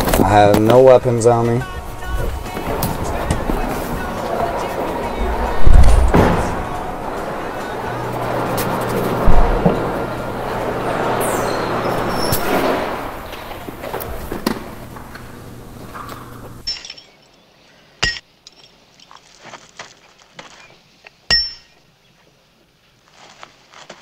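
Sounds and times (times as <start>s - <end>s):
hammer striking metal chains: 16.6s - 17.4s, 18.0s - 19.2s, 21.3s - 21.8s.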